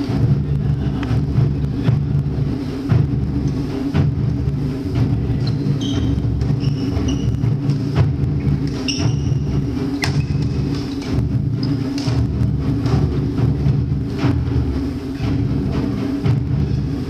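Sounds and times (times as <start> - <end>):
steady low rumble: 0.0 - 17.0
shoes squeaking on court: 5.4 - 7.4, 8.7 - 11.0.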